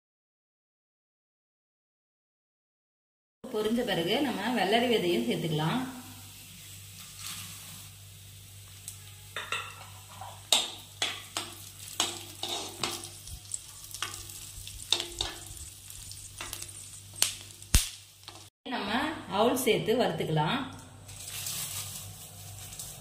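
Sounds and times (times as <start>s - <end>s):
faint frying sizzle: 3.5s - 18.5s, 19.6s - 23.0s
metal spoon scraping a pan: 7.0s - 7.9s, 9.1s - 17.2s.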